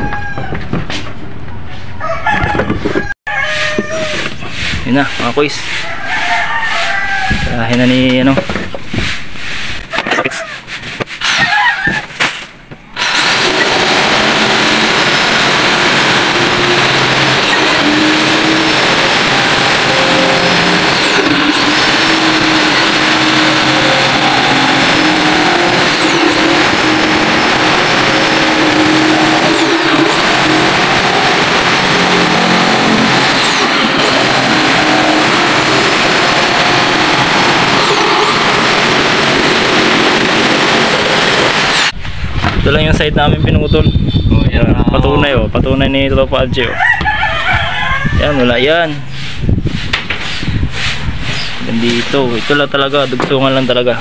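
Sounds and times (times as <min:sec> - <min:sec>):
jigsaw cutting plywood: 0:13.0 - 0:42.0.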